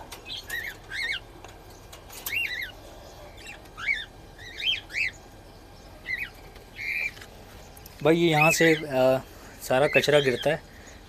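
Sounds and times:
cockatiels chirping: 0.2s - 1.3s, 2.1s - 5.2s, 6.0s - 7.3s.

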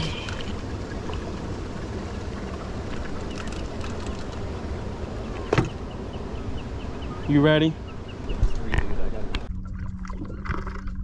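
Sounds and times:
water noise: 0.0s - 11.0s.

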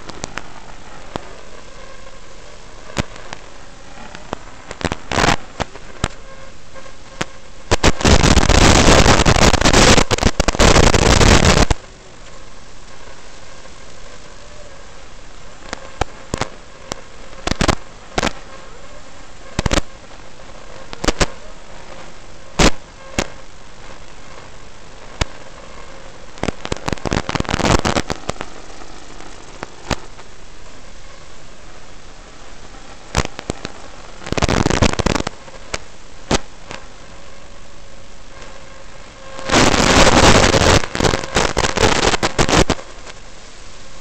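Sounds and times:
quadcopter motors and propellers: 0.0s - 34.3s
sharp crackles and pops: 0.0s - 44.0s
steady hiss: 0.0s - 44.0s.

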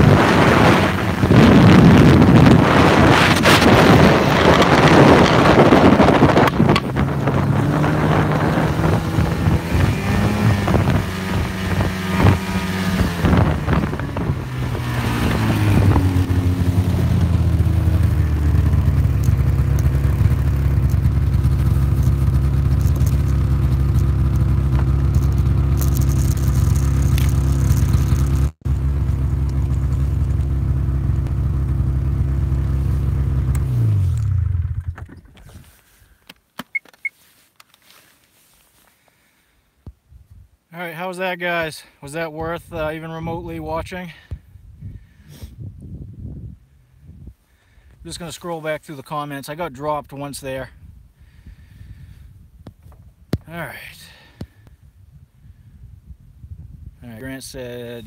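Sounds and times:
wind rush: 0.0s - 22.0s, 44.4s - 47.4s
snowmobile engine: 0.0s - 34.8s.

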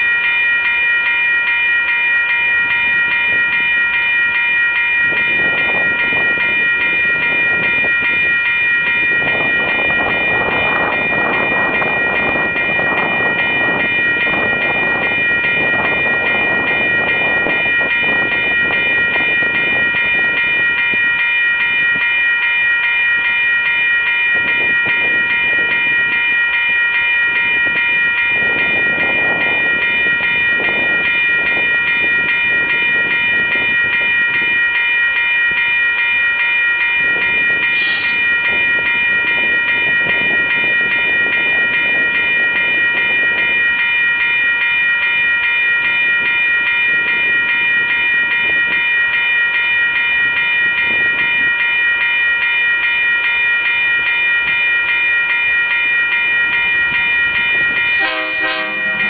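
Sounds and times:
crossing bell ringing rapidly: 0.0s - 59.0s
freight train rumbling past: 0.0s - 59.0s.

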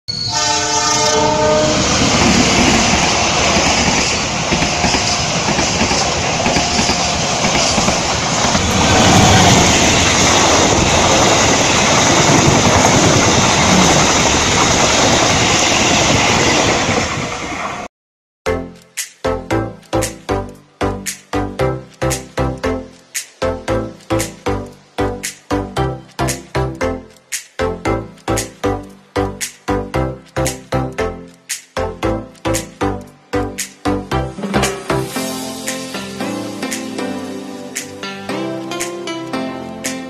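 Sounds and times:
train horn: 0.1s - 2.2s
train rumbling past: 0.1s - 17.9s, 33.4s - 39.3s
music with a beat: 18.5s - 40.0s.

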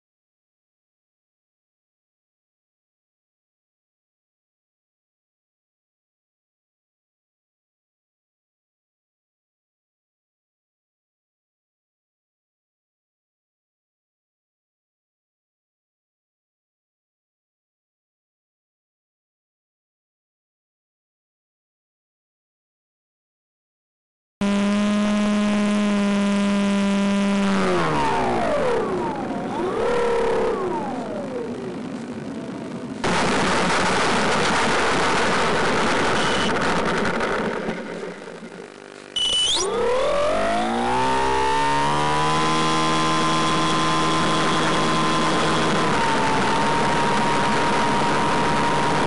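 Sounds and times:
model plane electric motor whine: 24.4s - 31.8s, 38.5s - 49.0s.

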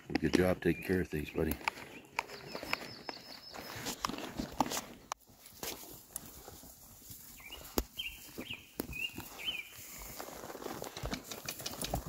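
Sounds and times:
bird chirping: 0.0s - 4.3s, 7.2s - 10.1s
horse hooves on ground: 0.0s - 12.0s.

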